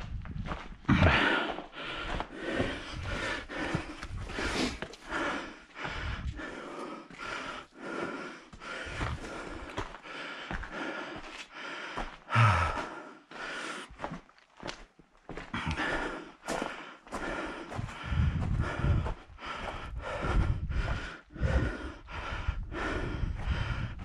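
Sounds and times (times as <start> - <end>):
footsteps on rock: 0.0 - 6.5, 8.5 - 12.2, 13.9 - 19.9
heavy breathing: 0.8 - 14.2, 15.4 - 24.0.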